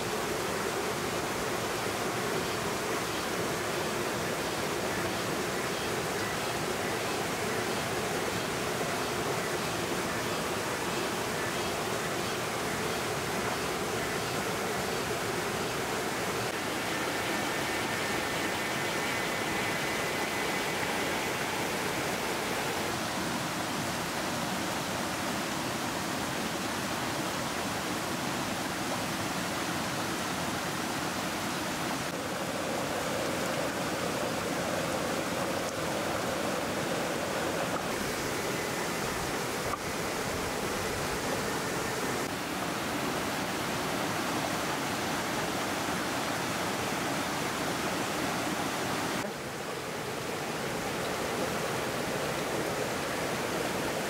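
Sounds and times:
stream rushing over boulders: 0.0 - 54.0.

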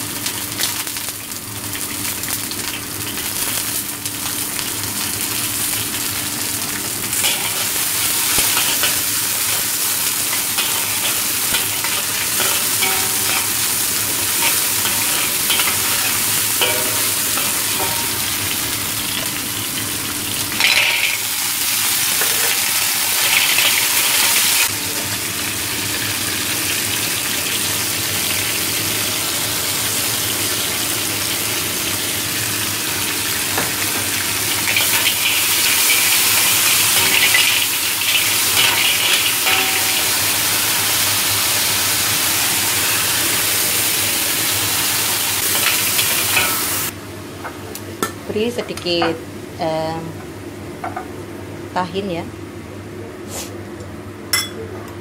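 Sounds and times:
food sizzling in hot oil: 0.0 - 47.0
metal spatula scraping wok: 7.2 - 18.4, 34.7 - 40.5.

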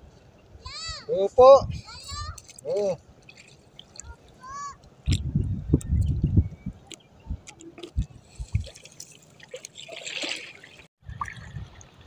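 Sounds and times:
seawater splashing and dripping: 2.3 - 5.2, 6.8 - 12.0.

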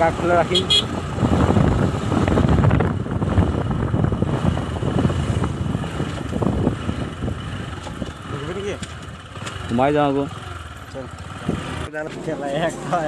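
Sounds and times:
motorcycle engine running: 0.0 - 13.0
wind buffeting microphone: 0.9 - 9.2.

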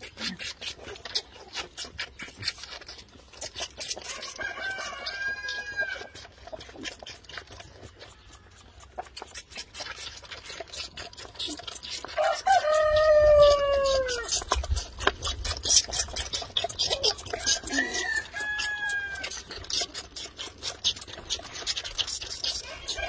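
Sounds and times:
lambs sucking on bottles: 0.0 - 23.0
rooster crowing: 4.1 - 6.1, 12.2 - 14.2, 17.4 - 19.3, 22.7 - 23.0.

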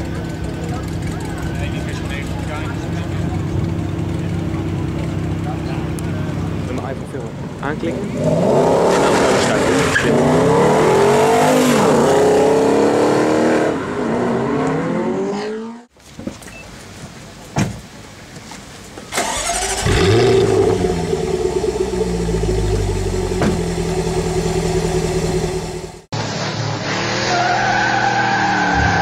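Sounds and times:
car engine starting and rumbling: 0.0 - 15.9, 19.0 - 29.0
car accelerating hard: 7.9 - 15.9, 19.2 - 29.0.

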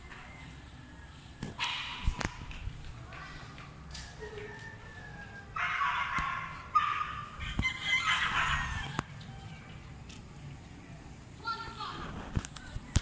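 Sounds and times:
rooster crowing: 4.2 - 9.6.

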